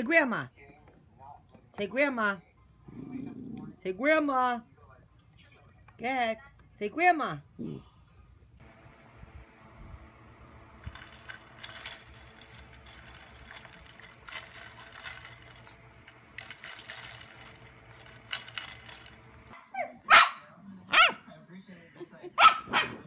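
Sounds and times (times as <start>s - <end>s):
steady low hum: 7.8s - 19.6s.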